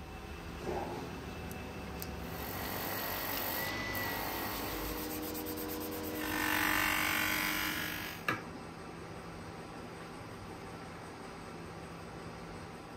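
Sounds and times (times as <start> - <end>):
sanding sponge scratching metal: 4.3 - 6.8.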